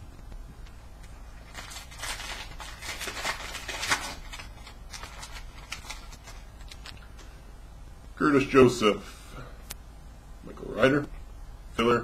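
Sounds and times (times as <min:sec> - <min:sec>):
foil pack crinkling and tearing: 0:01.4 - 0:07.1
cards rustling and clicking: 0:01.4 - 0:07.3.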